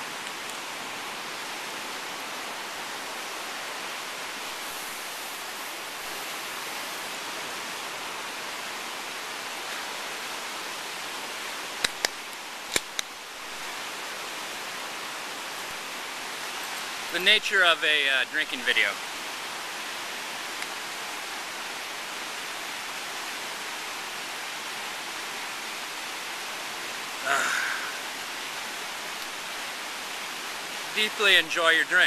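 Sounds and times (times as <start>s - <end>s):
sharp clicks: 11.8s - 13.1s.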